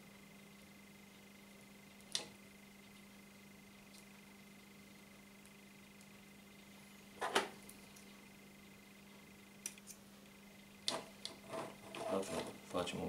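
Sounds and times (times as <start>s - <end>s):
steady low hum: 0.0s - 13.0s
short scrape: 11.4s - 12.6s.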